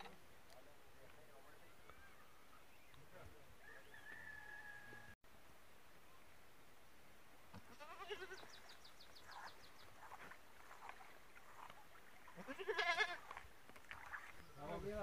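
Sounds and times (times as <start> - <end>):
goat bleating: 7.6 - 8.5, 12.4 - 13.4.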